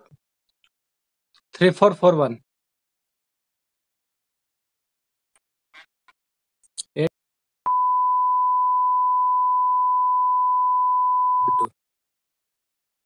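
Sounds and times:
censor bleep: 0:07.7 - 0:11.7.

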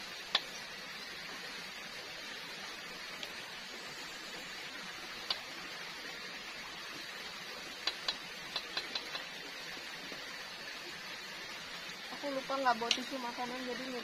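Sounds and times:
steady frying hiss: 0:00.0 - 0:14.0
utensil clicking against frying pan: 0:07.8 - 0:09.2.

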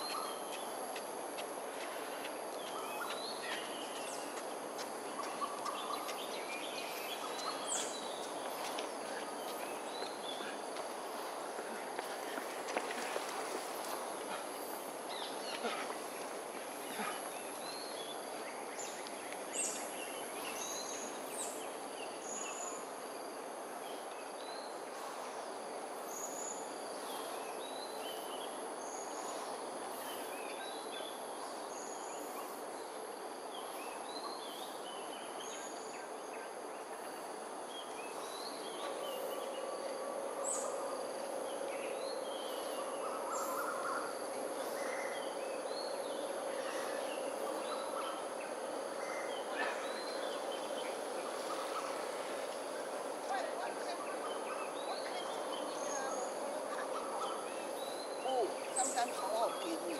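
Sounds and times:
background hum: 0:00.0 - 0:59.9
high insect drone: 0:00.0 - 0:59.9
steady droning tone: 0:38.1 - 0:59.9.

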